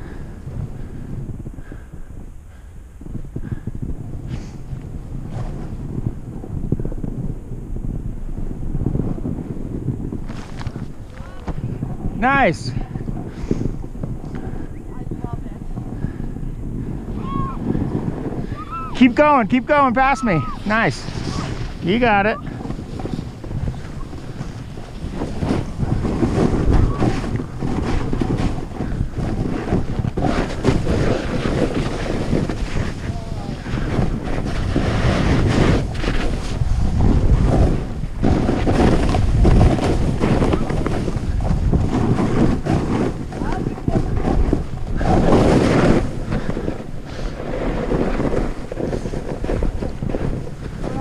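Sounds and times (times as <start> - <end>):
wind rushing over microphone: 0.0 - 51.0
skis scraping through snow: 3.0 - 7.3, 8.1 - 51.0.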